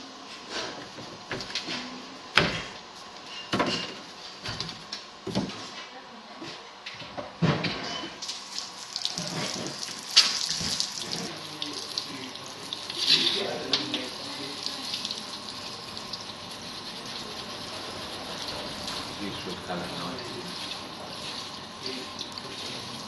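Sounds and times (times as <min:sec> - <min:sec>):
water running from a tap: 0:08.2 - 0:23.0.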